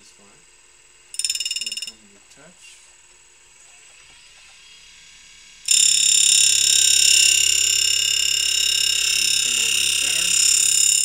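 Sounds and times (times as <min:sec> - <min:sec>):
high-pitched grinding whine: 0:00.0 - 0:11.0
grinding wheel spinning: 0:01.1 - 0:02.0, 0:05.3 - 0:11.0.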